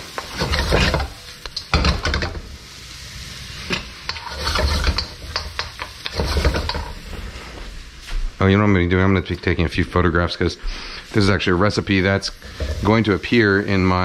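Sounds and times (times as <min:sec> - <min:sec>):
wooden spoon scraping a wok: 0:00.0 - 0:02.4, 0:03.2 - 0:07.8, 0:10.6 - 0:14.0
onions sizzling: 0:00.0 - 0:14.0.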